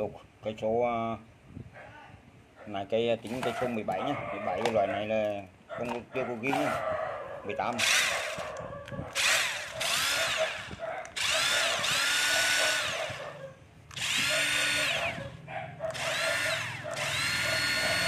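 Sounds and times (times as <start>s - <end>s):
cordless drill motor whining: 7.7s - 13.3s, 13.9s - 18.0s.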